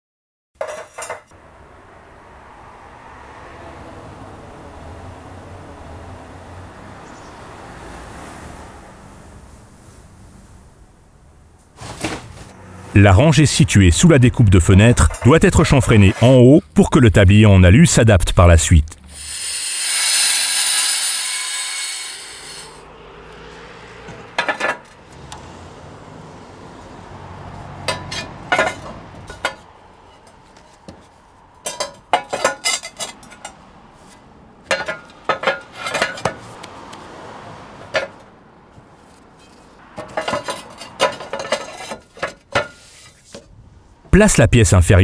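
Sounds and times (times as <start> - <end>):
angle grinder cutting roof tile: 19.1 - 22.8
roof tiles clacking: 34.6 - 36.8, 39.0 - 43.6.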